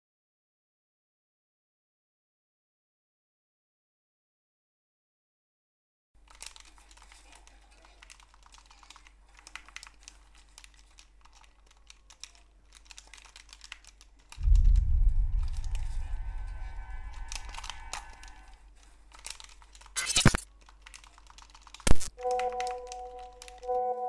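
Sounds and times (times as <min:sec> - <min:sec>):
computer keyboard typing: 0:06.2 - 0:15.8, 0:17.3 - 0:23.8
loud deep boom: 0:14.4 - 0:18.5
music tones: 0:22.1 - 0:24.0.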